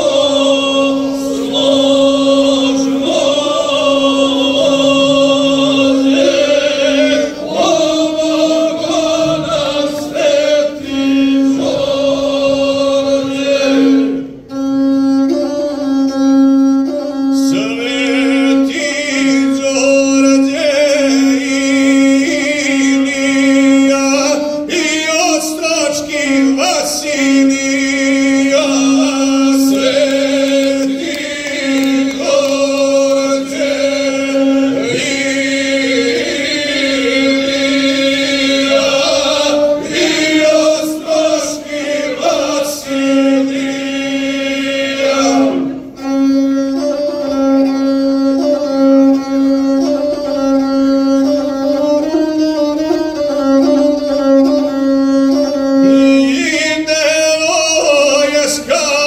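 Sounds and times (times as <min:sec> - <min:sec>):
man singing: 0:00.0 - 0:14.1, 0:17.4 - 0:45.6, 0:55.9 - 0:59.0
bowed single-string fiddle: 0:00.0 - 0:59.0.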